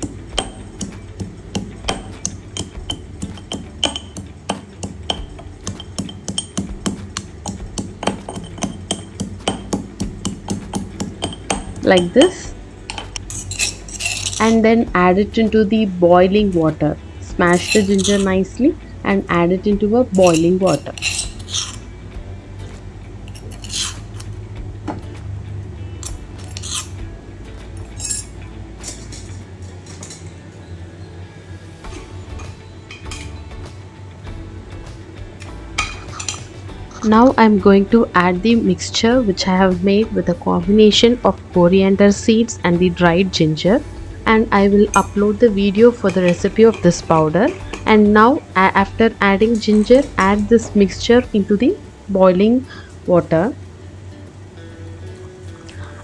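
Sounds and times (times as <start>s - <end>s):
pestle pounding in stone mortar: 0.0s - 12.3s
steady low hum: 0.0s - 56.0s
spoon scraping a saucepan: 17.5s - 18.3s, 20.2s - 21.8s.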